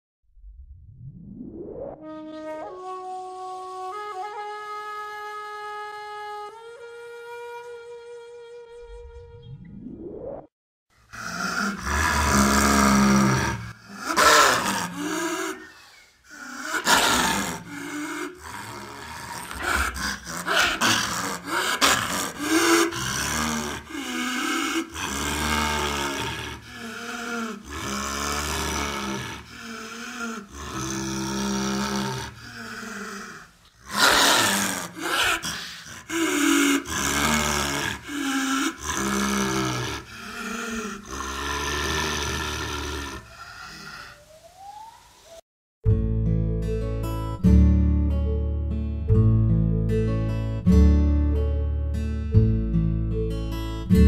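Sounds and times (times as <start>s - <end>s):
baby dinosaur roars and growls: 11.1s - 45.0s.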